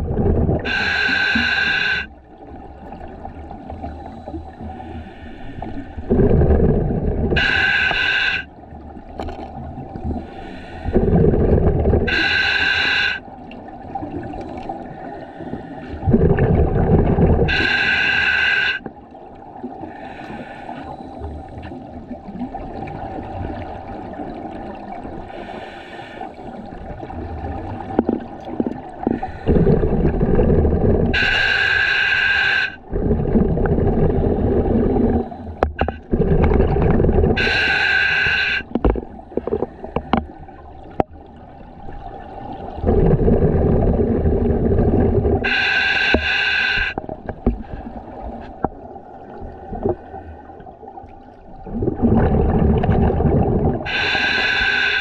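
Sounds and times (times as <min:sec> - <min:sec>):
diver exhaling bubbles: 0:00.0 - 0:02.1, 0:06.0 - 0:08.4, 0:10.0 - 0:13.2, 0:16.0 - 0:18.8, 0:26.9 - 0:41.1, 0:42.4 - 0:48.7, 0:51.5 - 0:55.0
regulator hiss: 0:00.7 - 0:02.1, 0:07.4 - 0:08.5, 0:12.1 - 0:13.2, 0:17.5 - 0:18.8, 0:31.2 - 0:32.8, 0:37.4 - 0:38.7, 0:45.4 - 0:47.0, 0:53.9 - 0:55.0.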